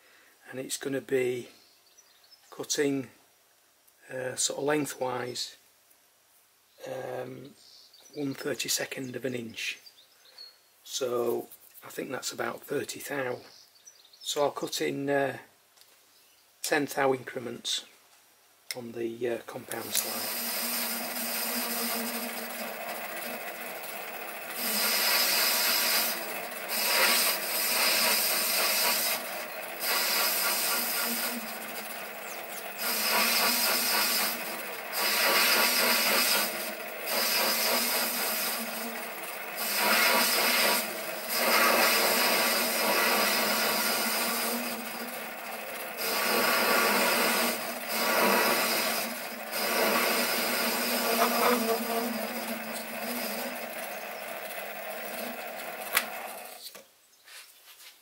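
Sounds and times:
lathe motor hum: 19.7 - 56.6
lathe tool scraping metal: 19.7 - 56.7.

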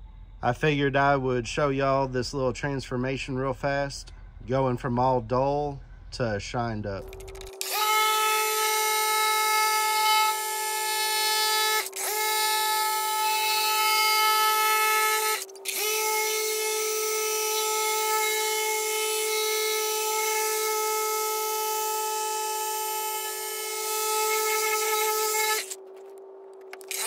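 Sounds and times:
polisher motor whine: 7.0 - 27.0.

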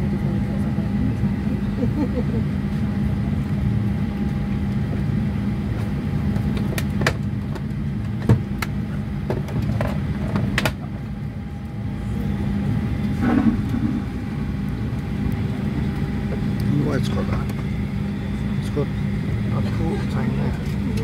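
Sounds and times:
jet engines rumbling: 0.0 - 21.0.

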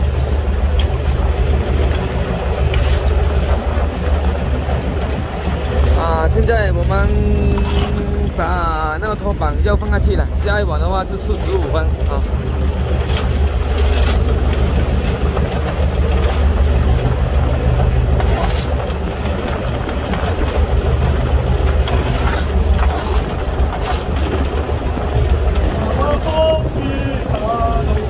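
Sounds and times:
boat engine droning: 0.0 - 28.0
plastic scoop scraping deck: 21.9 - 24.3.

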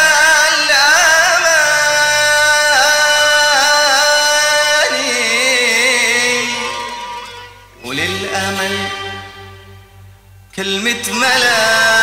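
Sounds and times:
man singing a long note: 0.0 - 7.0, 7.8 - 9.4, 10.5 - 12.0
orchestral accompaniment: 6.0 - 12.0.

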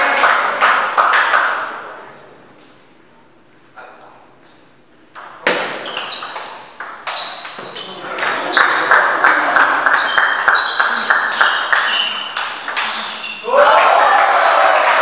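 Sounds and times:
spectators clapping: 0.0 - 1.7, 8.2 - 12.7, 13.4 - 15.0
table tennis ball pinging: 5.1 - 8.8, 9.8 - 13.4.

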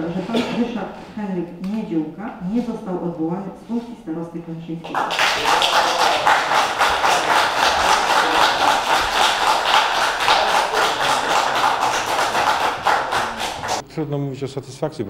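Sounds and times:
crowd applauding: 4.9 - 13.8.

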